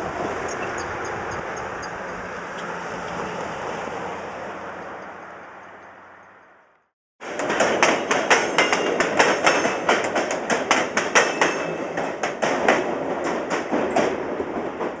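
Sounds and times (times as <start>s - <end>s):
train wheels clacking: 7.2s - 15.0s.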